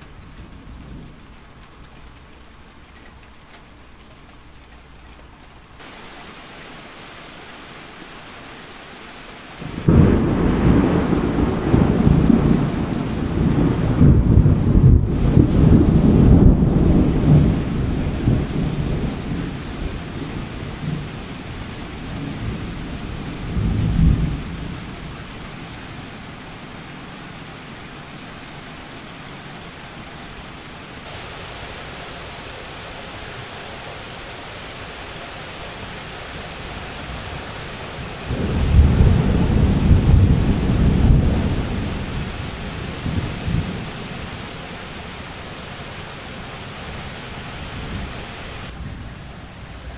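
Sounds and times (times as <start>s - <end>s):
thunder rumbling: 0.0s - 2.9s, 9.6s - 26.2s, 31.0s - 46.9s
heavy rain: 0.0s - 49.9s
low thunder crash: 9.6s - 17.6s, 38.3s - 42.2s.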